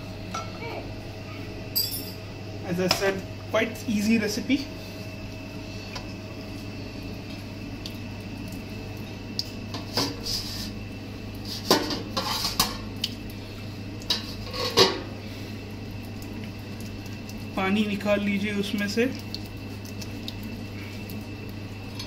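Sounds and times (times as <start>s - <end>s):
steady low hum: 0.0s - 22.0s
dishes clinking in a sink: 0.3s - 0.6s, 1.7s - 2.2s, 11.7s - 12.8s, 14.1s - 15.1s.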